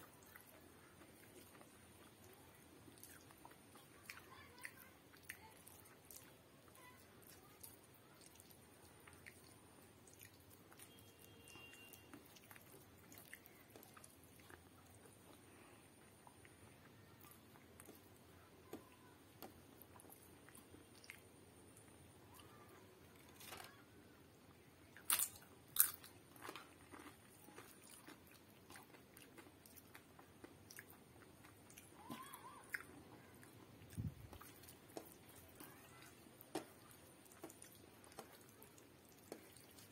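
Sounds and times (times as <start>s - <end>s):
wet chewing: 0.0s - 22.0s, 24.9s - 39.9s
crunching of crisp flatbread: 24.9s - 39.9s.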